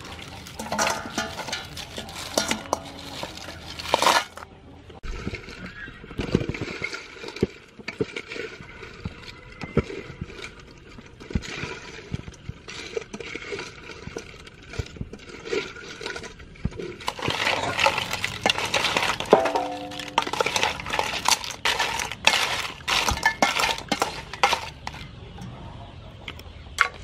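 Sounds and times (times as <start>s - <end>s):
shells clattering in steel bowl: 0.0s - 4.4s, 12.9s - 25.1s.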